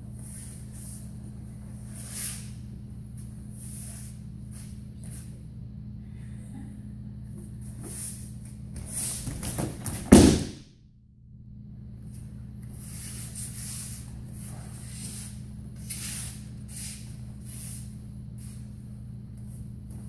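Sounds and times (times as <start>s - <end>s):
steady low hum: 0.0s - 20.0s
feet shuffling on mats: 7.4s - 10.5s
body slapping onto mat: 8.8s - 10.6s.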